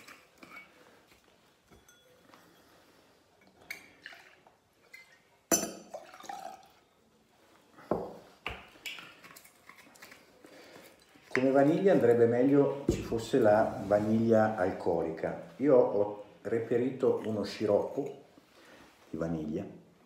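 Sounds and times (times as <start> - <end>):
glass and metal clinks: 1.7 - 2.7
liqueur pouring: 3.5 - 7.0.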